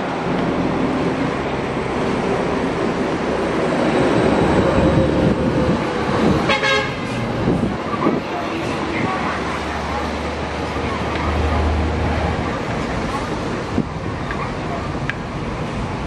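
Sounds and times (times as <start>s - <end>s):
traffic rumble: 0.0s - 16.0s
car horn toot: 6.5s - 7.1s.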